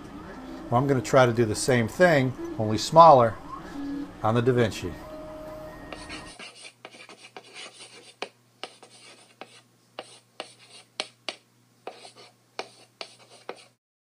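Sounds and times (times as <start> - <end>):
chalk scratching on chalkboard: 5.9 - 13.8
chalk tapping on board: 5.9 - 13.8.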